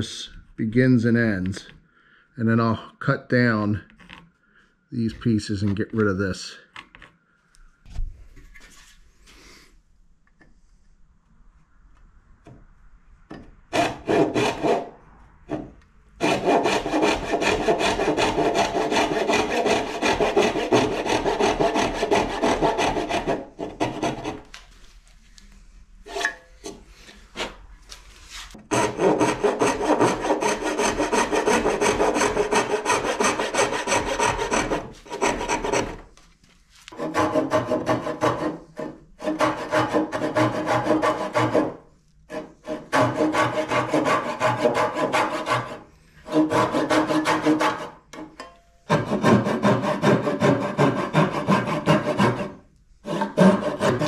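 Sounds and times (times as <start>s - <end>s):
hand saw cutting wood: 13.7s - 14.9s, 15.5s - 24.5s, 28.6s - 36.1s, 36.9s - 48.0s, 48.9s - 54.0s.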